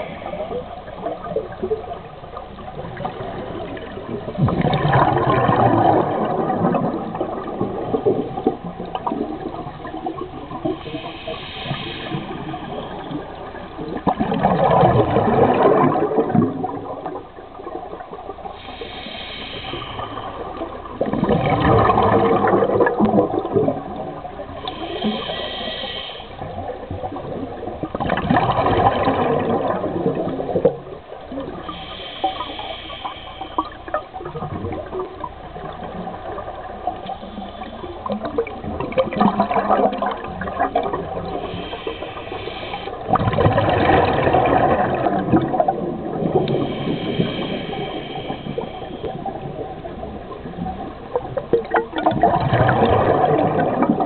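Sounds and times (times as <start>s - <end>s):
regulator hissing inhale: 0.0s - 1.0s, 10.8s - 13.5s, 18.5s - 20.8s, 24.4s - 26.8s, 31.5s - 34.0s, 36.9s - 38.3s, 41.2s - 43.1s, 46.4s - 50.3s
exhaled bubbles rushing: 0.0s - 18.7s, 19.6s - 25.3s, 26.4s - 31.7s, 33.6s - 54.0s.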